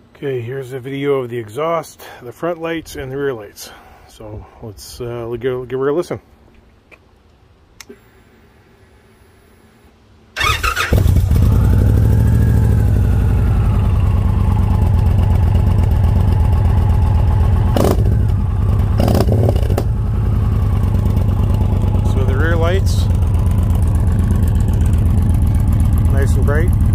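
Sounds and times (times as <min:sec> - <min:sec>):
motorcycle engine cranking and idling: 0:10.4 - 0:26.9.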